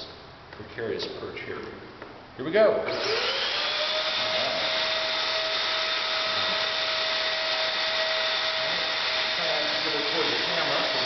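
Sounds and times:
vacuum cleaner motor running: 2.9s - 11.0s.

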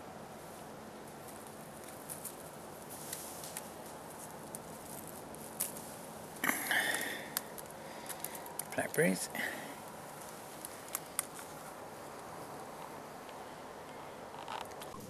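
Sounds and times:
leaves rustling: 0.0s - 15.0s
stems snapping: 1.2s - 15.0s
small clicks: 6.4s - 9.0s.

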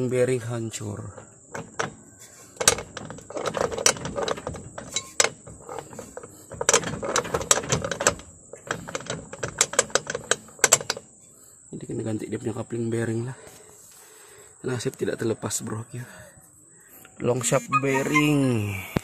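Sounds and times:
metallic clunks and rattles: 1.0s - 11.1s.

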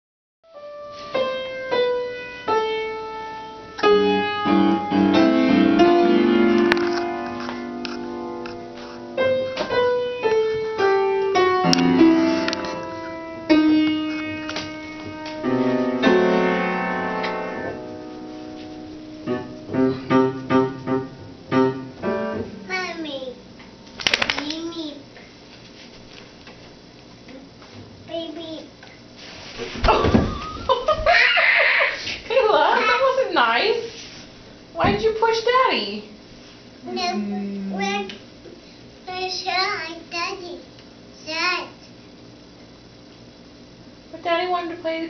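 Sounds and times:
upright piano playing: 0.5s - 23.0s.

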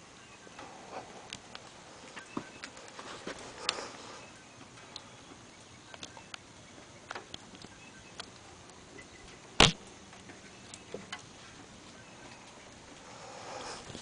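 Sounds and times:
faint clicks and ticks: 0.5s - 14.0s.

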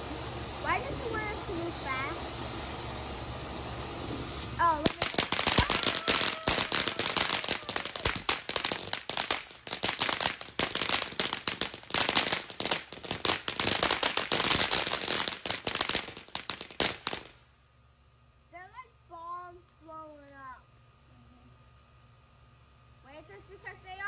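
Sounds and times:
firework crackling pops: 4.1s - 17.5s.

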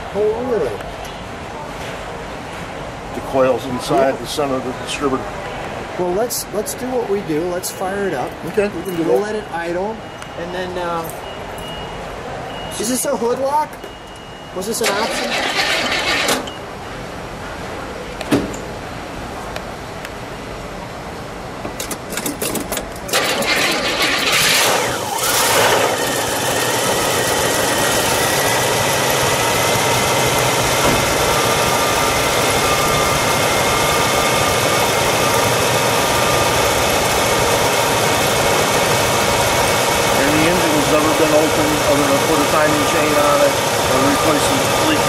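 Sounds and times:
car engine idling: 14.8s - 16.5s, 23.1s - 45.0s
starter cranking engine: 14.8s - 16.5s, 23.1s - 29.2s.

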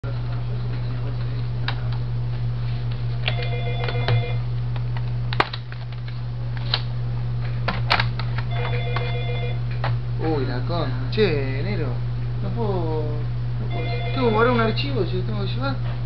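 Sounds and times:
electrical hum: 0.0s - 16.0s
electronic telephone ring: 3.3s - 4.4s, 8.5s - 9.6s, 13.7s - 14.8s.

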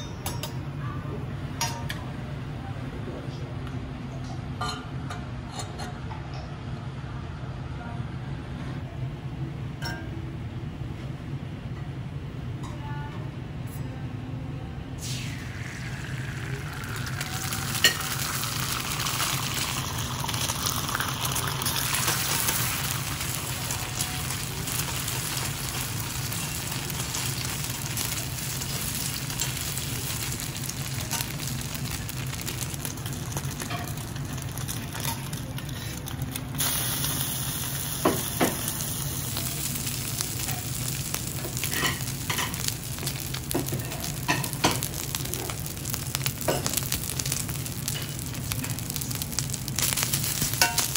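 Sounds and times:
egg sizzling in oil: 15.0s - 50.9s.

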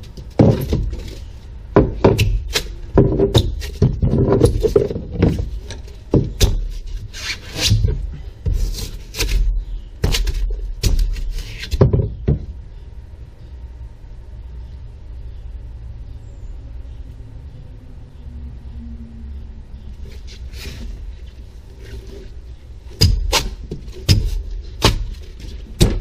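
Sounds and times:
claw hammer striking foam: 23.0s - 25.2s.

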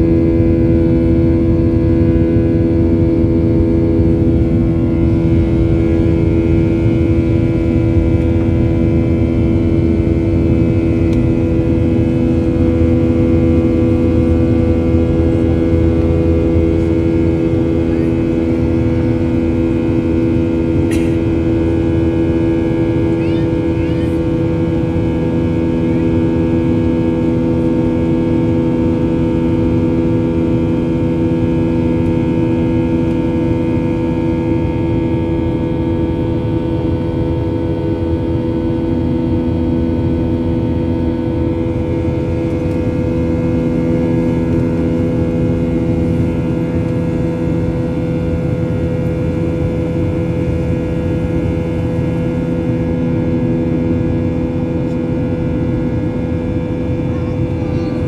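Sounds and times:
airplane cabin drone: 0.0s - 58.0s.

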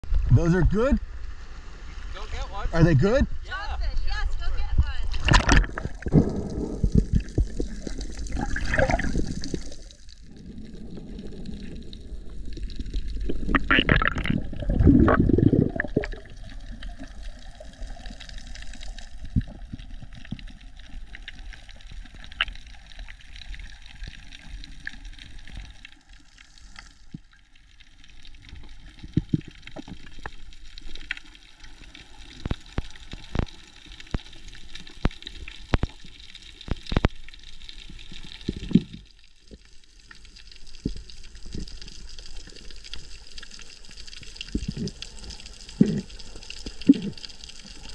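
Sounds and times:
muffled underwater water: 0.0s - 47.9s
bubbly rush: 4.9s - 22.2s, 41.4s - 47.9s.

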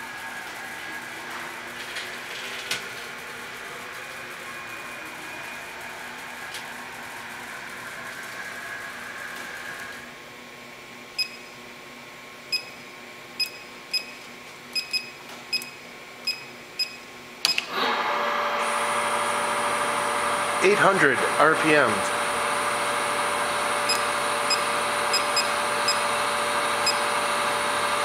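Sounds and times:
short keypad beeps: 11.2s - 11.5s, 12.5s - 12.8s, 13.4s - 14.2s, 14.8s - 17.6s, 23.9s - 26.0s
spindle whirring: 17.5s - 28.0s.

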